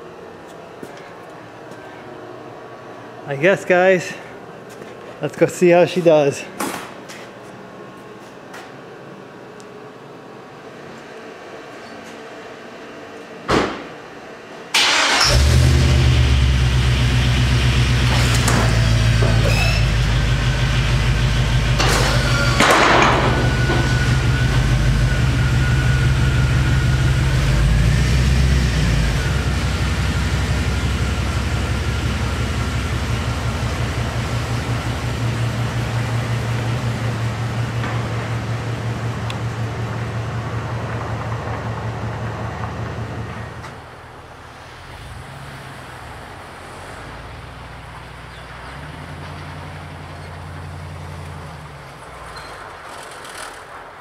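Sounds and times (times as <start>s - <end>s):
thump: 13.5s - 13.9s
diesel truck engine idling: 14.8s - 45.1s.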